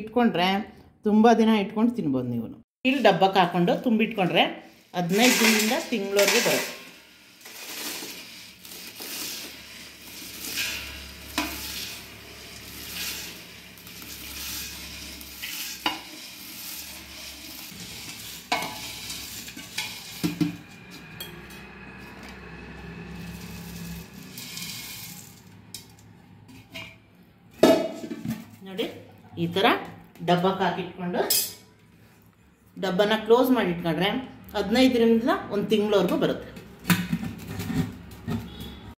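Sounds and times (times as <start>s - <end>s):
spoon scraping steel: 4.6s - 27.0s
puffed rice pouring: 4.7s - 20.3s, 23.2s - 25.5s.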